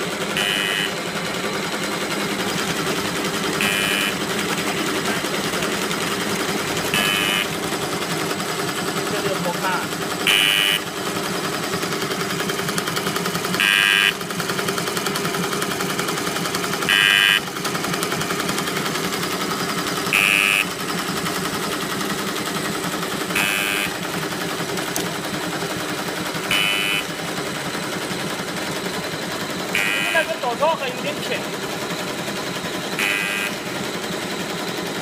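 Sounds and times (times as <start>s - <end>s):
packing machine clatter: 0.0s - 35.0s
higher-pitched mechanical burst: 0.2s - 1.6s, 2.5s - 7.6s, 29.6s - 31.5s.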